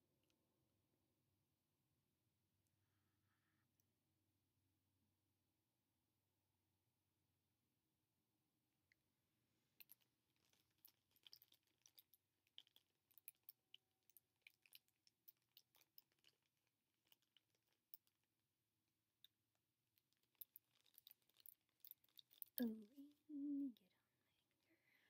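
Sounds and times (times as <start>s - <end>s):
small items being handled: 9.7s - 24.8s.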